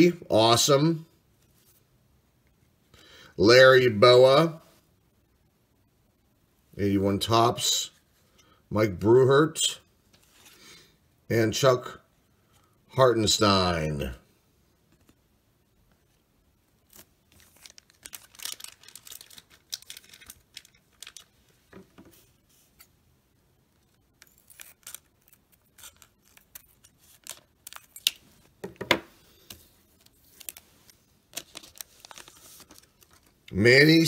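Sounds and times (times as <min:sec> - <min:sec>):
foil pack crinkling: 0:16.9 - 0:21.7, 0:24.2 - 0:28.4, 0:29.9 - 0:33.5.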